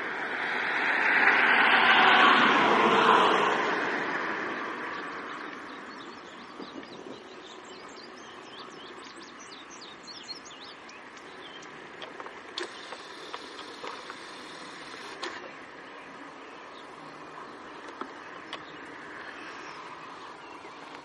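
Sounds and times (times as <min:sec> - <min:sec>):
birds chirping: 0:04.3 - 0:21.0
sharp clicks: 0:10.8 - 0:15.5.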